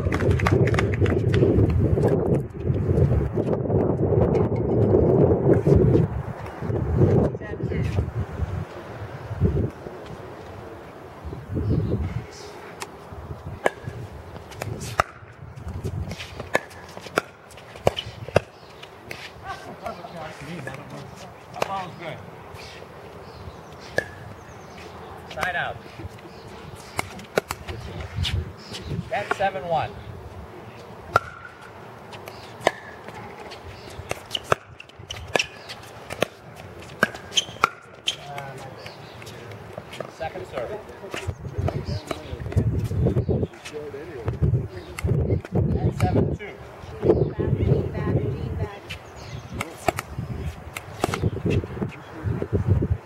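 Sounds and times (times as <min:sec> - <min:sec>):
ball bouncing on hard court: 0:16.4 - 0:19.2, 0:31.1 - 0:38.6
paddles hitting plastic ball: 0:26.9 - 0:27.8.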